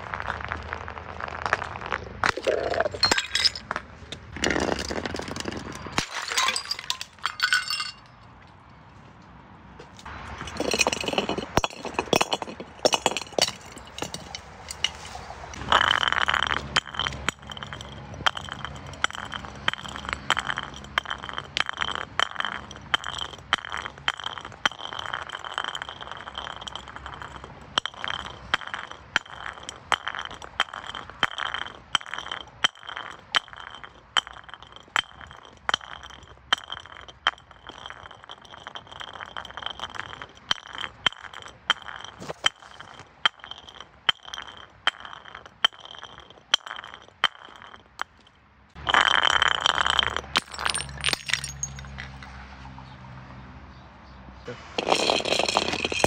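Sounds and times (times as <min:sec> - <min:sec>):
glass bottles clinking: 0:02.2 - 0:03.8, 0:04.4 - 0:08.2, 0:10.4 - 0:48.2, 0:48.8 - 0:52.2, 0:54.8 - 0:56.0
high ringing of glass: 0:06.0 - 0:08.1.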